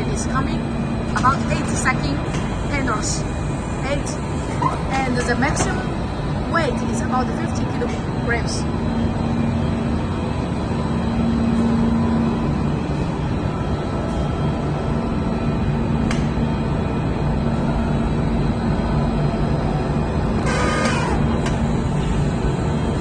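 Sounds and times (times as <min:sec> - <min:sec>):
constant low hum: 0:00.0 - 0:23.0
production line machinery running: 0:00.0 - 0:23.0
brief shrill sound: 0:20.4 - 0:21.2.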